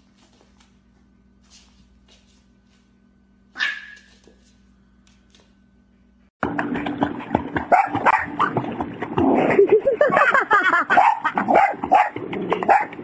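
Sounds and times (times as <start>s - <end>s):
dog barking and yipping: 3.6s - 4.2s, 7.7s - 8.6s, 10.9s - 13.0s.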